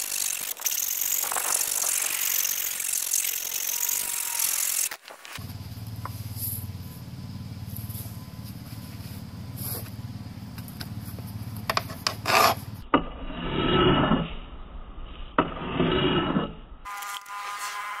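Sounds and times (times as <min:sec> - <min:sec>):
file scraping steel blade: 0:11.7 - 0:12.6, 0:15.4 - 0:18.0.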